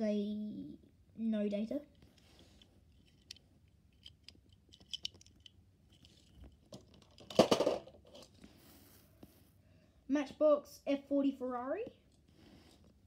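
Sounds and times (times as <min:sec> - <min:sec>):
toy cars clicking and tapping: 0:04.0 - 0:08.3.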